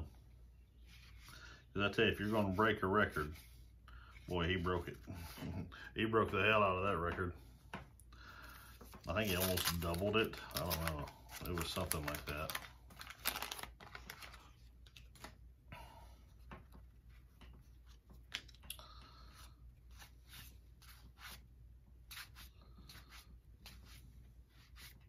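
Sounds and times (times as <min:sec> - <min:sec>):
paper wrapper crinkling: 0:09.0 - 0:15.4.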